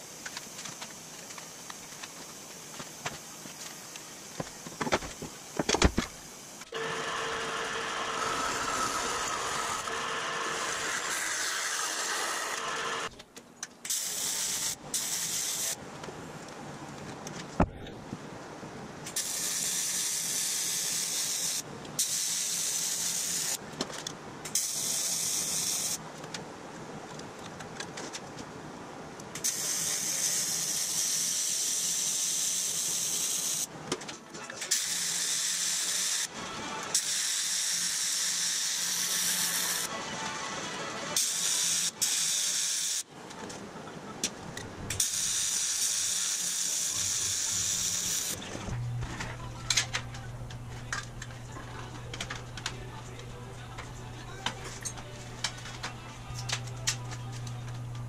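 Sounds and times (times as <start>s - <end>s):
welding arc hissing: 13.9s - 15.8s, 19.1s - 23.6s, 24.5s - 26.0s, 29.4s - 33.7s, 34.7s - 36.3s, 36.9s - 39.9s, 41.2s - 43.1s, 44.9s - 48.4s.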